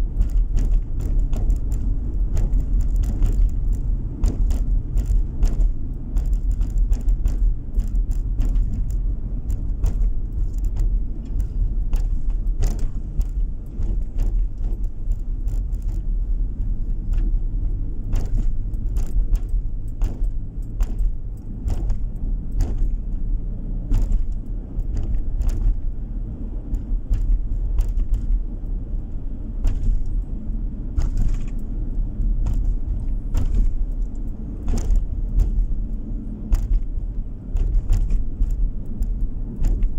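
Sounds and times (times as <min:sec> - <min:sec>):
car engine and tyre rumble: 0:00.0 - 0:39.9
light clicks and rattles: 0:00.0 - 0:39.9.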